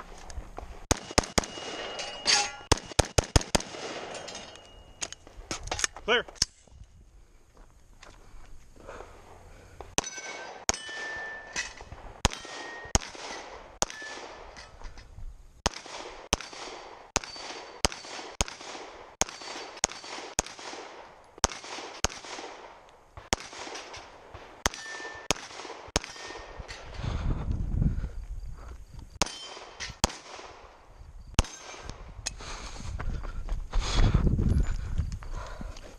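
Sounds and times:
pistol shots: 0.9s - 4.4s, 10.0s - 14.6s, 15.6s - 26.8s, 29.2s - 30.8s, 31.4s - 32.0s
bullet ringing on steel target: 1.0s - 2.7s, 4.0s - 5.0s, 10.0s - 13.0s, 13.8s - 14.3s, 17.2s - 18.1s, 24.7s - 25.4s, 29.2s - 30.0s.

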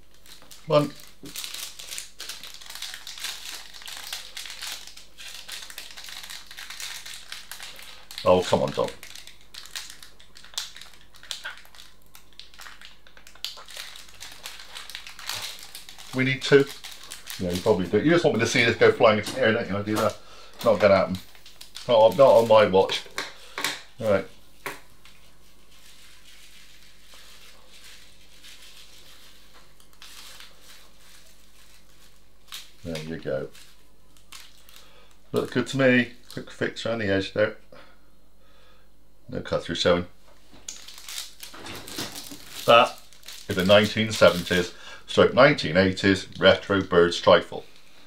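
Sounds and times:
plastic packet crinkling: 0.0s - 36.7s, 40.4s - 44.8s
low steady hum: 0.0s - 48.0s
sprinkles pattering on cream: 0.1s - 17.9s, 42.3s - 44.7s.

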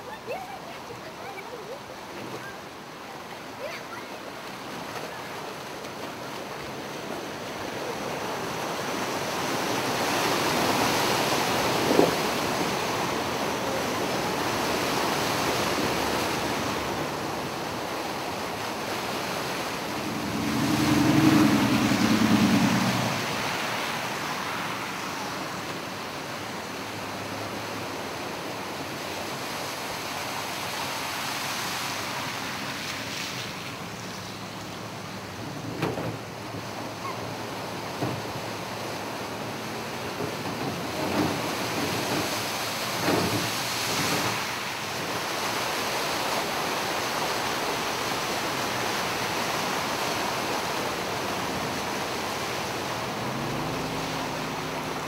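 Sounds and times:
floodwater rushing: 0.0s - 55.0s
van driving through water: 0.0s - 55.0s
wind buffeting the microphone: 15.6s - 24.4s.

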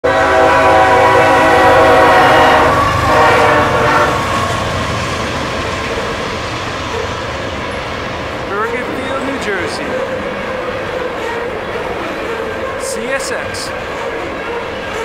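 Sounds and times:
locomotive air horn: 0.0s - 4.8s
train cars rumbling past: 0.0s - 15.0s.

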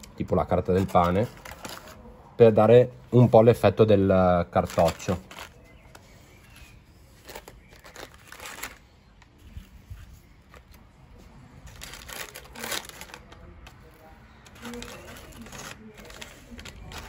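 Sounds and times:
paper bag crinkling: 4.5s - 8.9s, 9.6s - 17.0s.

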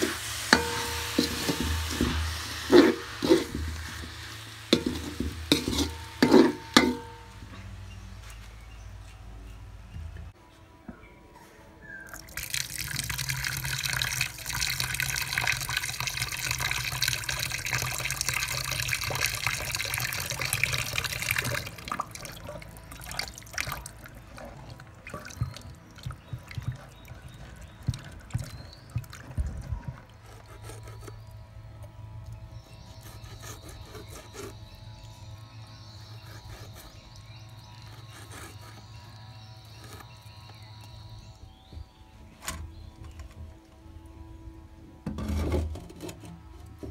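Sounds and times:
water pouring from a hose: 0.0s - 6.8s, 12.1s - 26.6s.

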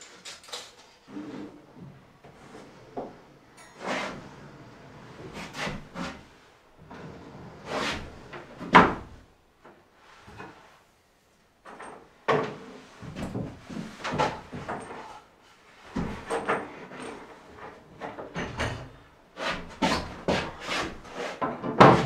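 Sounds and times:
wooden cabinet knocks and scrapes: 12.3s - 15.1s, 15.9s - 22.0s.

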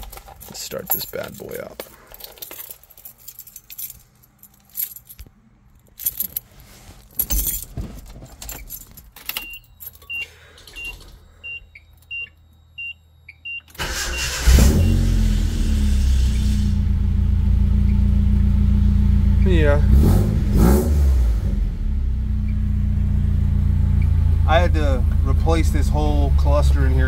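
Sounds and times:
keys rattling in ignition: 0.0s - 12.1s.

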